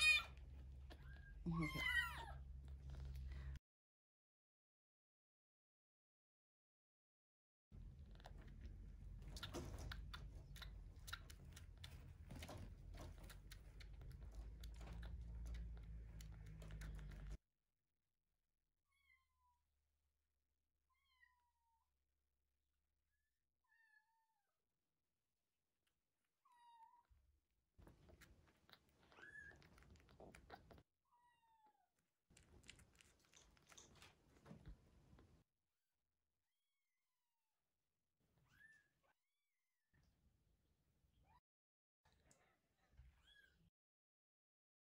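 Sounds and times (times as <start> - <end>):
clicking and rustling: 8.0 - 17.4.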